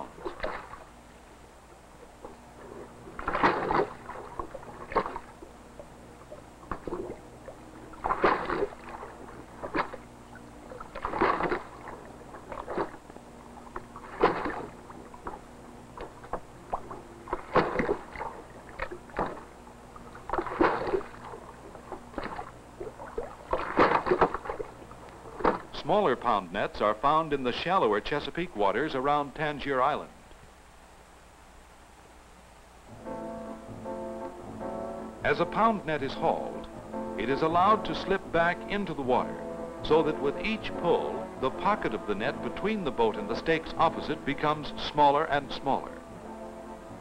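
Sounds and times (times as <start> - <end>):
water splashing against wooden boats: 0.0 - 1.1, 1.9 - 28.2, 35.3 - 46.1
faint steady hum: 0.0 - 47.0.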